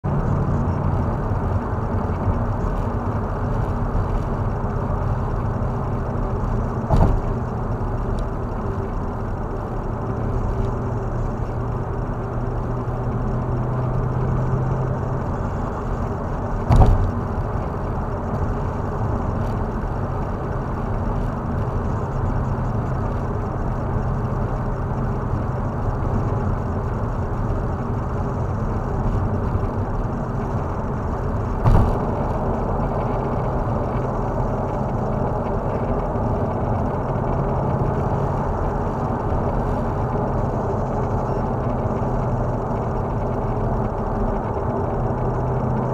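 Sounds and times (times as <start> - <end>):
low engine drone: 0.0 - 45.9
road and tyre noise: 0.0 - 45.9
short thumps: 6.9 - 7.4, 16.7 - 17.2, 31.6 - 32.1.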